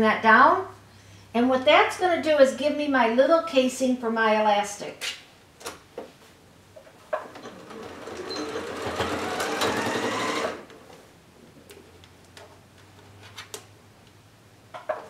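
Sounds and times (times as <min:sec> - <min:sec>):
sewing machine motor whine: 0:07.2 - 0:11.0.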